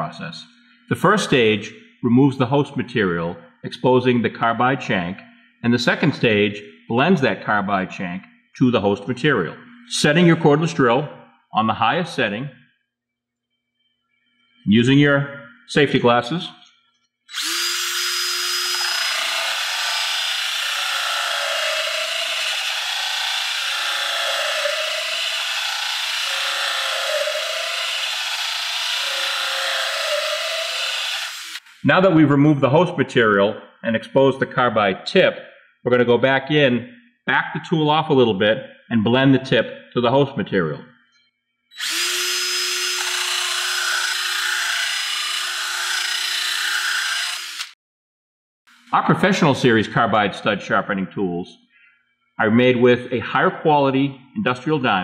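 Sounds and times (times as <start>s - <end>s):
drill grinding hiss: 17.3s - 31.8s, 41.8s - 47.8s.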